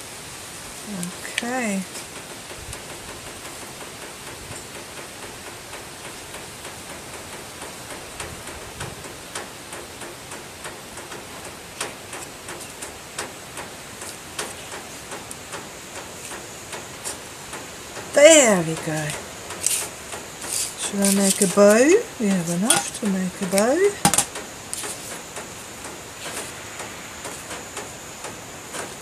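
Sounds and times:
background hiss: 0:00.0 - 0:29.0
paper clicks and rustles: 0:19.0 - 0:26.7.

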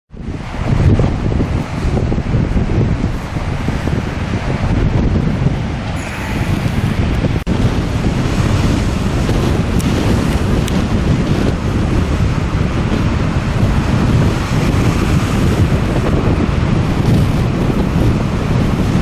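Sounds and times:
wind buffeting microphone: 0:00.1 - 0:19.0.

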